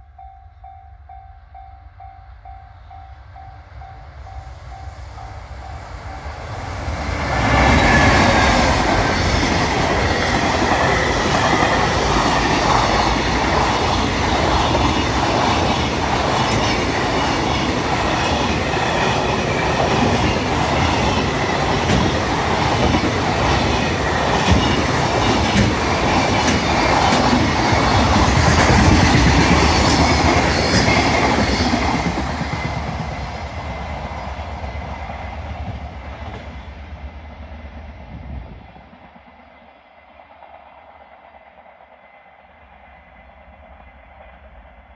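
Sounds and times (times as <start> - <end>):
freight train rumble: 0.0 - 44.9
train wheels clacking over rail joints: 7.9 - 33.1.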